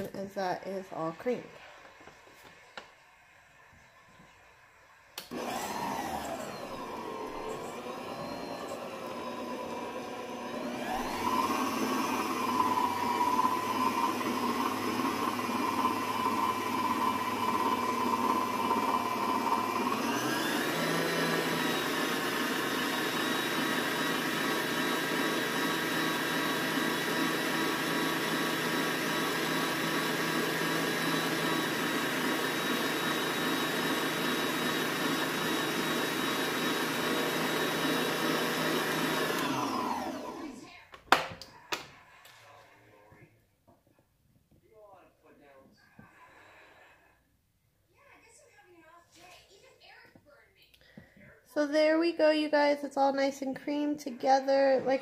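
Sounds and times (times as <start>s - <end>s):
stand mixer motor whine: 5.2s - 40.7s.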